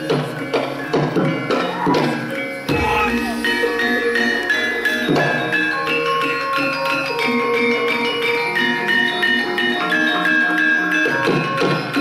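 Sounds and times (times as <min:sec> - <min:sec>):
drum strokes: 0:00.0 - 0:04.4
metallophones and gongs ringing: 0:00.1 - 0:12.0.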